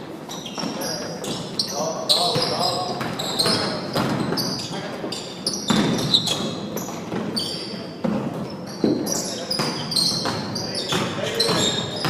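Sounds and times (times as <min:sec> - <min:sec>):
basketball bouncing on gym floor: 0:02.2 - 0:04.6, 0:05.7 - 0:12.0.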